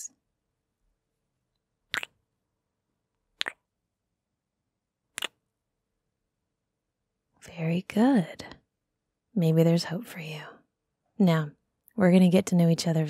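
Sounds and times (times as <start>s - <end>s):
kissing sounds with lips: 1.9s - 2.2s, 3.4s - 3.7s, 5.2s - 5.4s.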